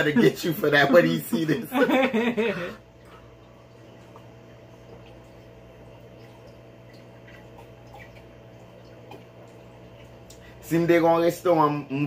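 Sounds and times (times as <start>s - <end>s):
low room hum: 0.0s - 12.0s
sips and swallows: 6.2s - 10.6s.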